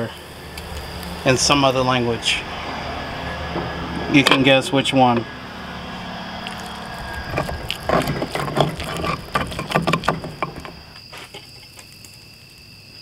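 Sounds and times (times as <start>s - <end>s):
stone pestle knocking and scraping: 7.2s - 10.8s.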